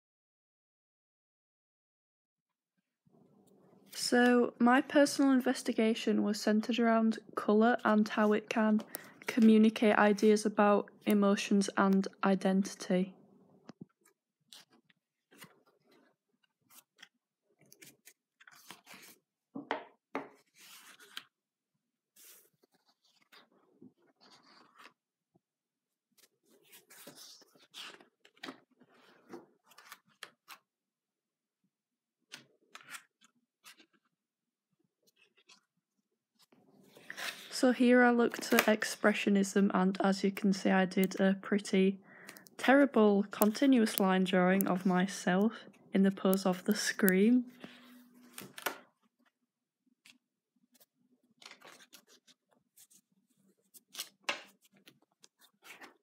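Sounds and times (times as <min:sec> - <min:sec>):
sketchbook pages being turned: 0:07.6 - 0:12.8, 0:13.9 - 0:19.4, 0:20.2 - 0:21.4, 0:22.1 - 0:25.1, 0:25.9 - 0:30.8, 0:32.3 - 0:34.2, 0:34.9 - 0:49.4, 0:50.0 - 0:56.0.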